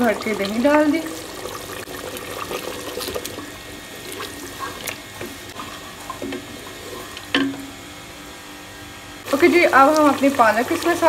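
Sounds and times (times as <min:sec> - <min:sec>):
wet sloshing and squelching: 0:00.0 - 0:07.8.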